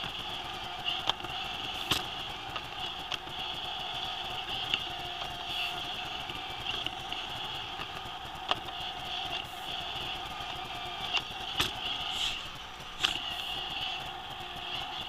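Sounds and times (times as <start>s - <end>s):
robot vacuum motor whine: 0.0s - 15.0s
vacuum and brushes hissing: 12.0s - 13.8s.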